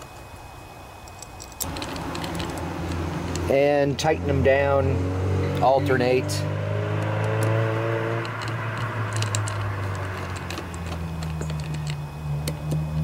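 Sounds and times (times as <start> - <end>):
steady low hum: 0.0 - 13.0
hand tool clicking on screws: 1.1 - 3.5, 8.2 - 12.8.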